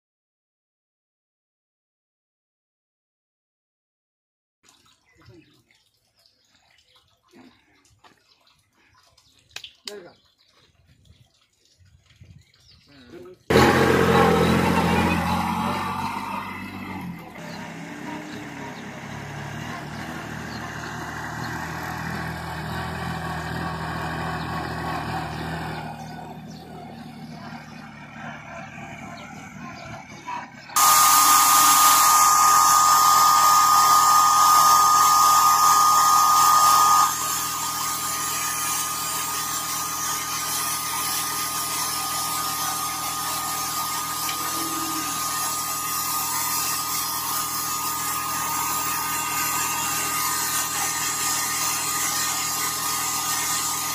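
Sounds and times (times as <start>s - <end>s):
sprayer whine over rushing air: 13.5s - 20.6s, 30.8s - 53.9s
tractor engine running: 13.5s - 53.9s.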